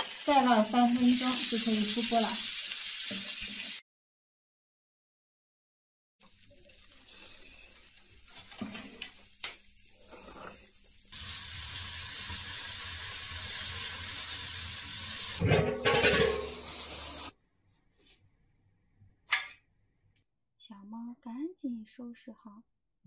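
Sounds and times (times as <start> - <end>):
wood fire hissing: 0.0 - 3.8, 6.2 - 15.4, 16.2 - 17.3
lid clattering and steam rushing: 15.3 - 17.3.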